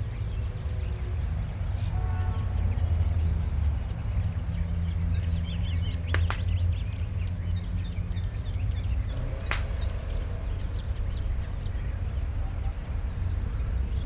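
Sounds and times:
small birds chirping: 0:00.0 - 0:14.0
sharp snaps: 0:06.1 - 0:06.6, 0:09.4 - 0:09.9.

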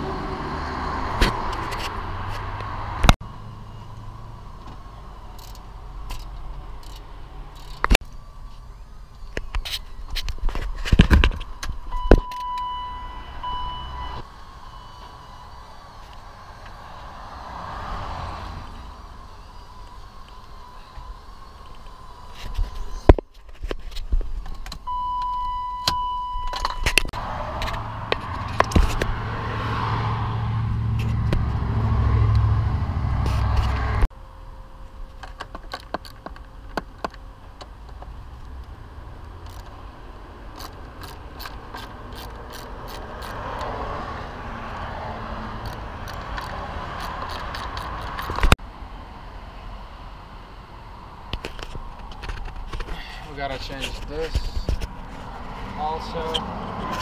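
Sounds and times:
ratchet clicking: 0:05.3 - 0:07.9, 0:39.4 - 0:39.7, 0:40.5 - 0:43.7, 0:45.6 - 0:48.5
steady beep: 0:11.9 - 0:15.6, 0:24.9 - 0:26.6.

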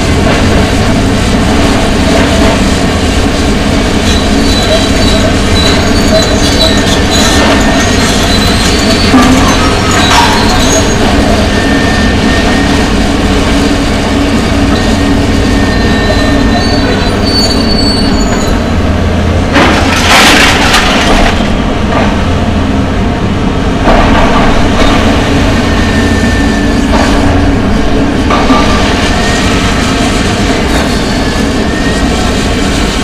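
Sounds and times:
excavator diesel engines and hydraulics: 0:00.0 - 0:33.0
crashing and scraping debris: 0:19.5 - 0:21.5.

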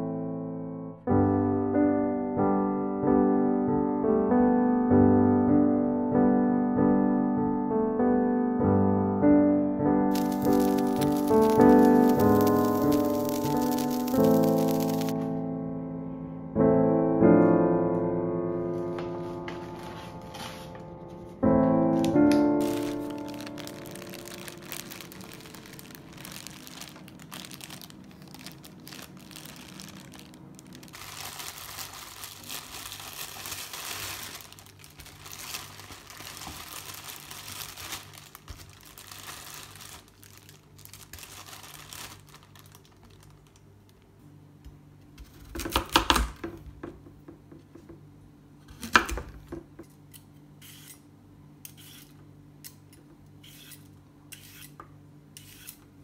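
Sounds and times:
plastic bags crinkling: 0:10.1 - 0:15.2, 0:21.9 - 0:43.7.

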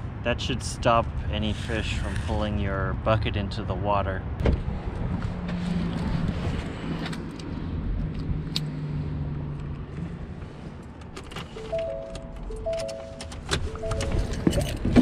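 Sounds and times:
background music: 0:11.5 - 0:15.0.

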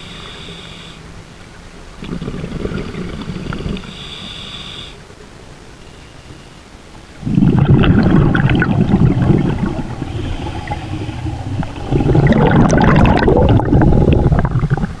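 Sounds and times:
underwater exhaust bubbles gurgling: 0:01.9 - 0:04.6, 0:07.1 - 0:15.0.

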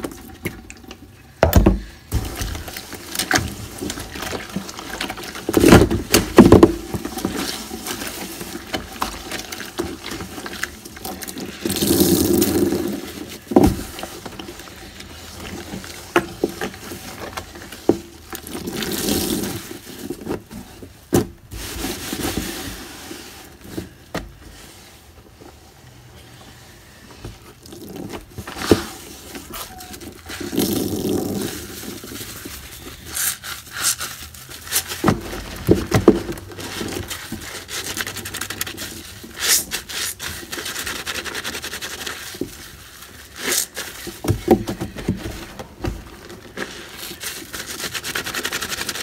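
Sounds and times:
water swishing in a bathtub: 0:02.1 - 0:26.0
knocks and scrapes on tub: 0:43.6 - 0:46.8.

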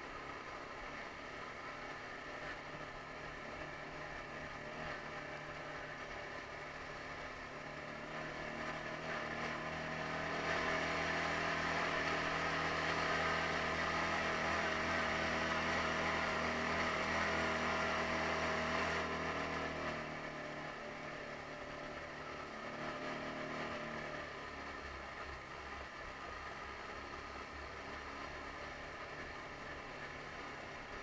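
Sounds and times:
atv engine under throttle: 0:00.0 - 0:31.0.

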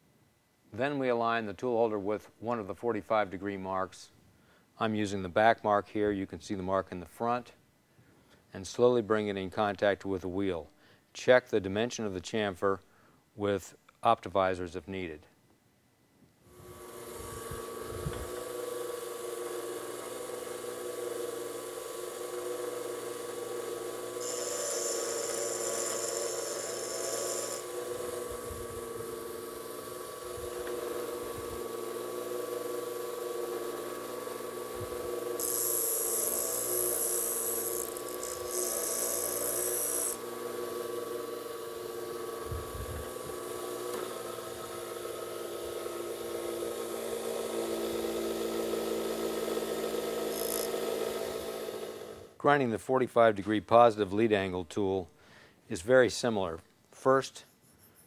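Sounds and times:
tool bit grinding hiss: 0:16.5 - 0:52.1
bench grinder humming: 0:16.5 - 0:52.4.

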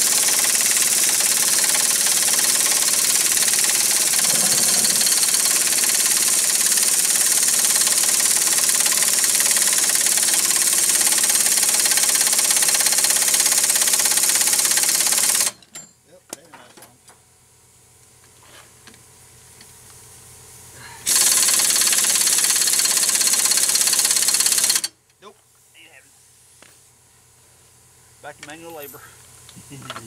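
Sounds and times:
impact wrench hammering: 0:00.0 - 0:14.3.

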